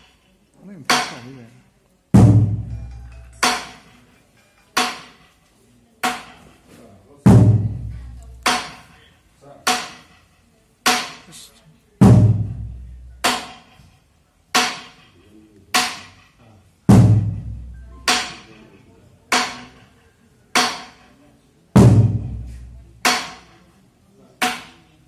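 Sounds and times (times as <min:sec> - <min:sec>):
deep booming drum stroke: 0:02.2 - 0:02.9, 0:07.3 - 0:08.0, 0:12.0 - 0:13.5, 0:16.9 - 0:18.2, 0:21.8 - 0:23.0
slow drum strokes: 0:02.2 - 0:04.0, 0:07.3 - 0:08.7, 0:12.0 - 0:13.8, 0:16.9 - 0:18.5, 0:21.8 - 0:23.4.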